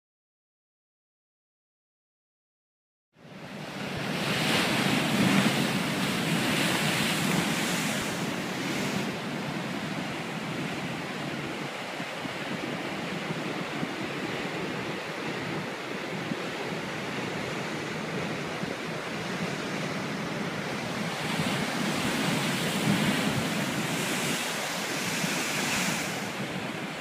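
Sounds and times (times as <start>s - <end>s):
surf breaking on rocks: 4.1s - 9.6s, 17.3s - 27.0s.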